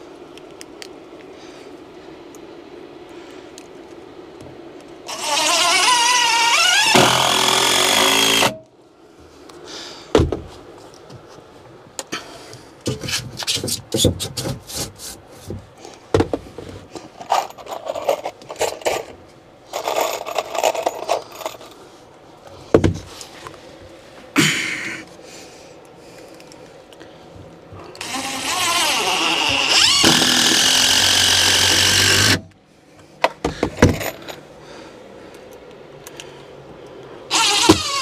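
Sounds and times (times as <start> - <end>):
power drill running: 5.1 - 8.6, 28.0 - 32.4, 37.3 - 38.0
rasping bursts: 5.1 - 8.6, 28.0 - 32.4, 37.3 - 38.0
boards and tools clattering: 6.8 - 8.6, 29.8 - 31.0.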